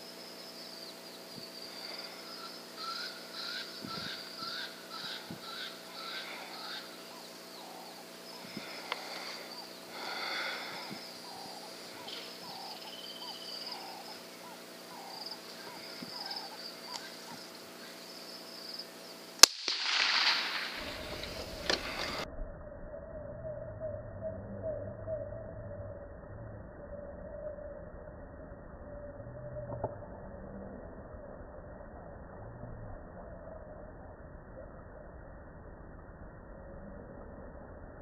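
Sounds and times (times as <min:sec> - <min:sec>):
birds chirping: 0:00.0 - 0:22.2
insects chirping: 0:00.0 - 0:32.4
rifle shot with echo: 0:19.4 - 0:22.2.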